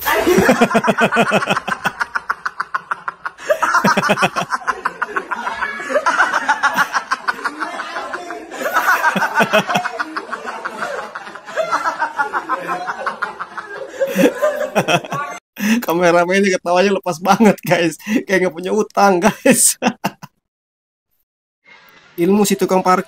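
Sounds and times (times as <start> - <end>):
person laughing hard: 0.0 - 15.8, 19.2 - 20.3.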